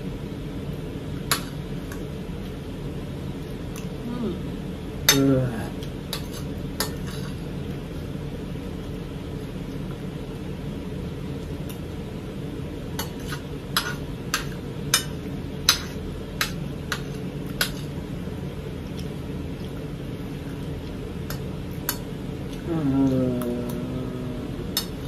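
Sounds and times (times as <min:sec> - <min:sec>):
low hum: 0:17.4 - 0:25.0.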